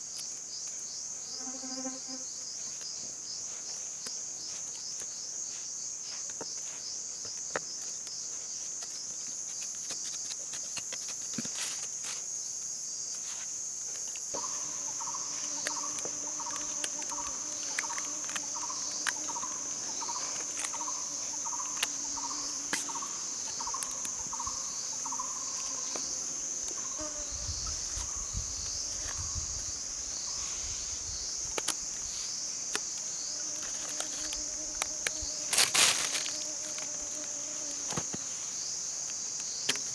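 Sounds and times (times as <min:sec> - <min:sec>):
high-pitched insect drone: 0:14.3 - 0:31.5.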